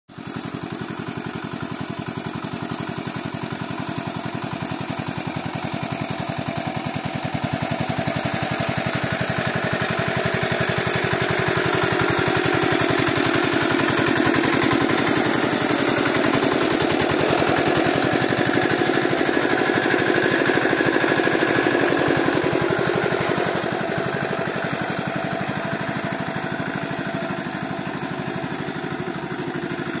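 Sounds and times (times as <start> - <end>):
small tractor engine running: 0.1 - 30.0.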